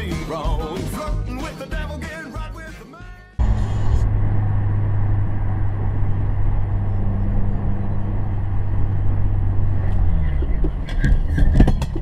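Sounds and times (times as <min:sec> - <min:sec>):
car road and engine drone: 0:03.4 - 0:12.0.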